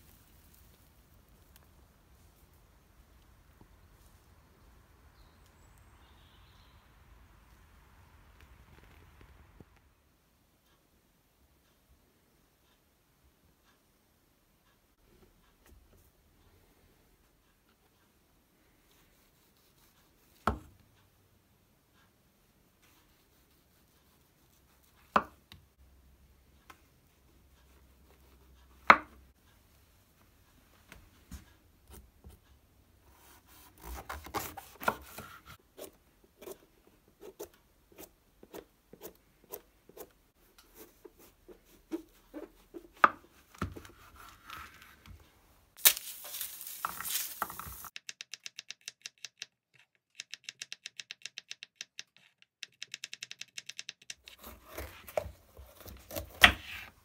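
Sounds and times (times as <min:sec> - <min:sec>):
knife slicing mushrooms: 0:33.2 - 0:36.6, 0:54.3 - 0:56.9.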